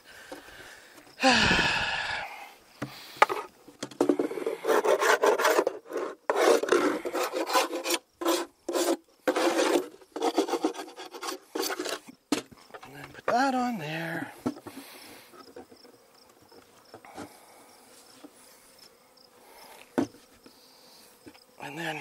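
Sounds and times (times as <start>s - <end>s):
metal tool scraping wood: 3.2s - 13.0s.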